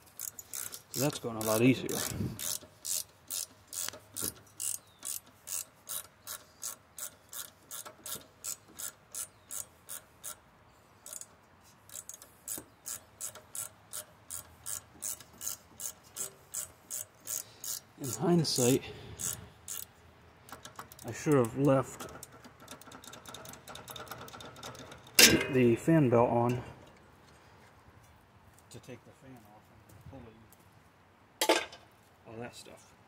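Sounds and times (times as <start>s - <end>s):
ratchet wrench clicking: 0.1s - 10.4s, 11.0s - 25.3s.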